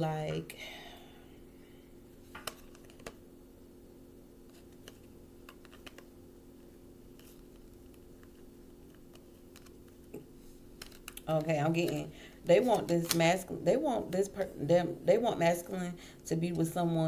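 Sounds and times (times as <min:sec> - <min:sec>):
low steady hum: 0:00.0 - 0:17.0
cards being shuffled: 0:04.5 - 0:06.1, 0:07.1 - 0:10.0, 0:10.8 - 0:12.0.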